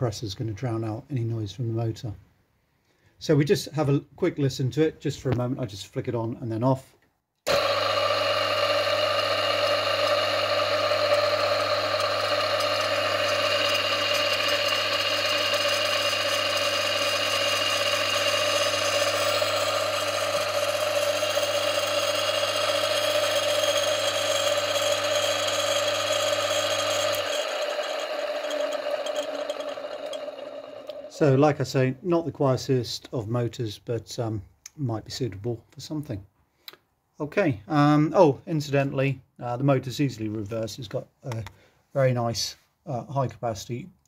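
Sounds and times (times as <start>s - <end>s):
electric motor running: 7.5s - 31.6s
screechy rumbly bearings: 7.5s - 31.6s.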